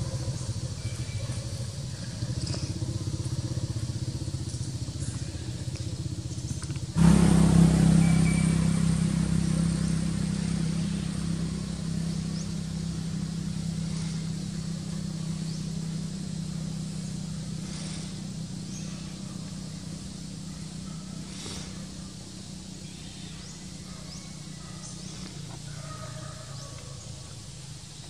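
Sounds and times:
vehicle engine humming: 0.0s - 28.0s
faint high chirps: 7.8s - 25.5s.

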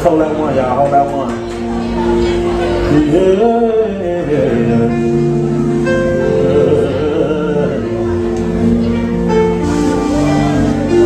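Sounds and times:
gospel band keyboard chords: 0.0s - 11.0s
man singing: 2.7s - 8.6s.

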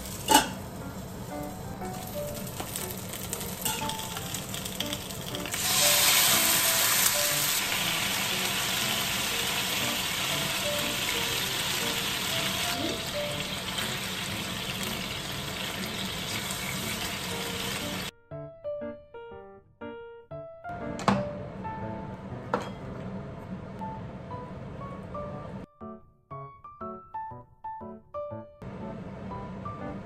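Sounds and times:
tofu sizzling in a frying pan: 2.0s - 18.1s
sauce hissing in hot pan: 5.5s - 18.1s.

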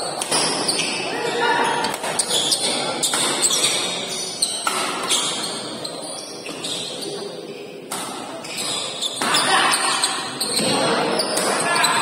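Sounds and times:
spectators chattering: 0.0s - 12.0s
rackets smacking shuttlecock: 3.0s - 3.8s, 4.6s - 5.3s.

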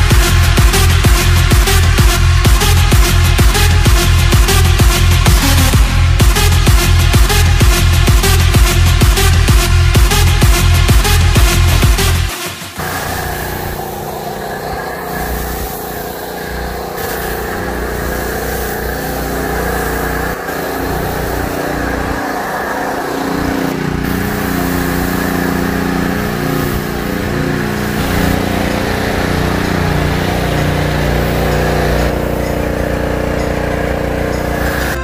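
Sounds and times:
pressure washer motor hum: 0.0s - 35.0s
foam spray hissing: 11.0s - 33.2s, 34.4s - 35.0s.

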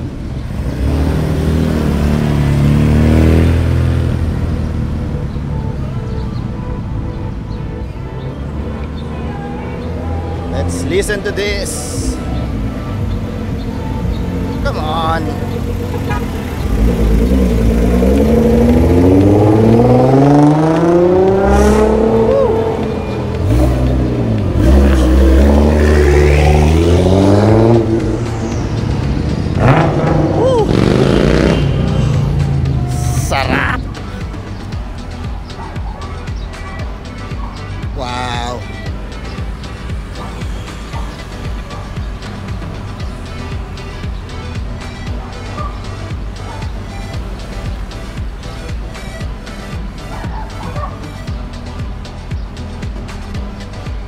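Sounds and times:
small car driving past: 0.4s - 5.4s, 15.4s - 33.3s.

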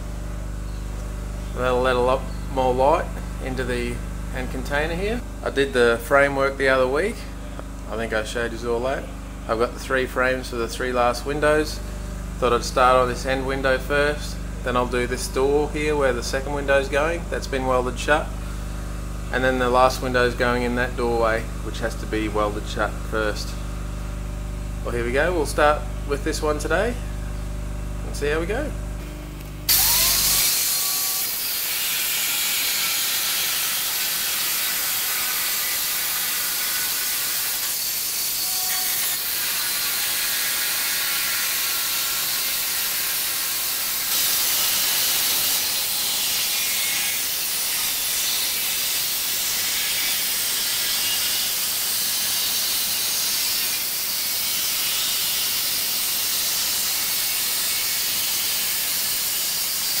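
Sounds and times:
angle grinder cutting steel: 29.7s - 60.0s.

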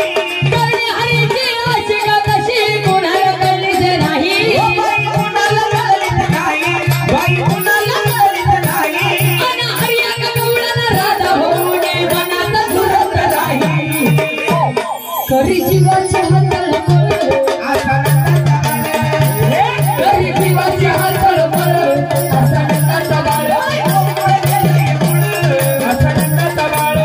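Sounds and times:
steady drum beat: 0.0s - 27.0s
woman singing folk song: 7.6s - 14.4s
jingling rattles: 18.0s - 27.0s.

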